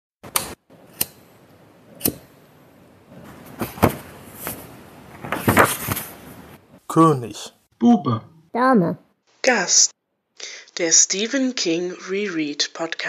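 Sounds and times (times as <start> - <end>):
rustling noise: 3.1 - 6.8.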